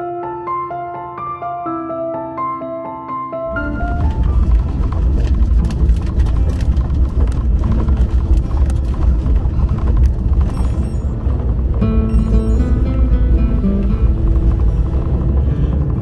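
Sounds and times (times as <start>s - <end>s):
tyres rumbling on road: 3.5s - 16.0s
small knocks and rattles: 3.6s - 16.0s.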